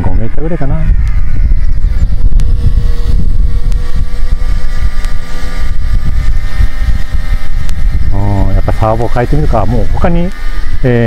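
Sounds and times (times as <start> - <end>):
rc helicopter whine: 0.0 - 11.0
wind buffeting microphone: 0.0 - 11.0.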